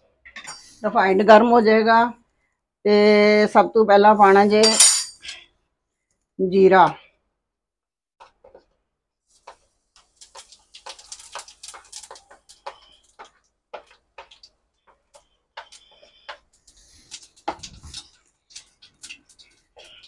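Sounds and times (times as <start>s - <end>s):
seeds crackling in hot oil: 8.2s - 20.0s.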